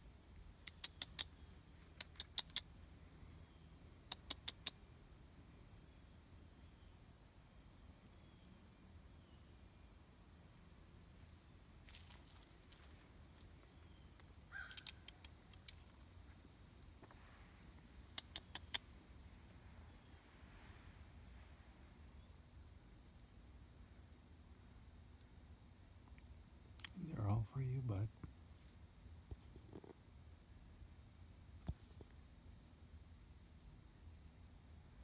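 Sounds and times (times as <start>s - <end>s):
high-pitched insect chirring: 14.5s - 16.0s.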